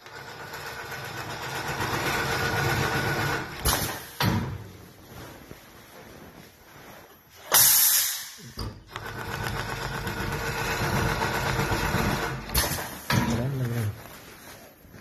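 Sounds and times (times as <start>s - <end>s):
quilting machine running: 0.0s - 4.2s, 8.8s - 14.0s
compressed air hiss: 7.4s - 8.6s.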